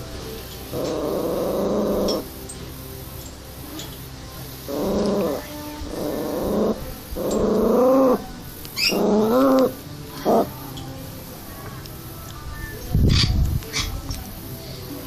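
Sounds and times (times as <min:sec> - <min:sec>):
small dog growling: 0:00.7 - 0:02.3, 0:04.6 - 0:10.6.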